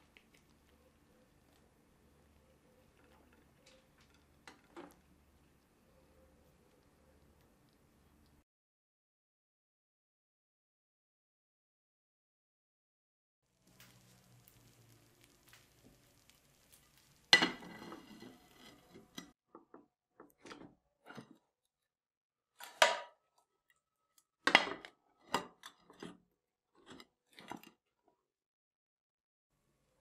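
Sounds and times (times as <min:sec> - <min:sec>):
pan and plate clattering on metal: 0:17.4 - 0:19.3.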